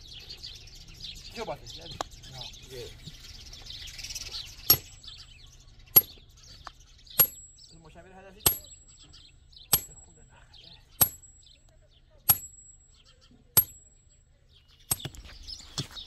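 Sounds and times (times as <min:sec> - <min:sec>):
hammer clanging on steel bar: 0:04.7 - 0:05.0, 0:07.2 - 0:07.5, 0:08.4 - 0:08.9, 0:09.7 - 0:10.1, 0:11.0 - 0:11.4, 0:12.3 - 0:12.8, 0:13.6 - 0:13.9.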